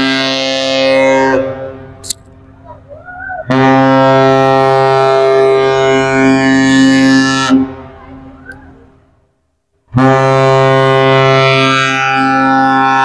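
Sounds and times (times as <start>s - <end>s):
deep ship horn blast: 0.0s - 2.0s, 3.5s - 8.3s, 9.9s - 13.0s.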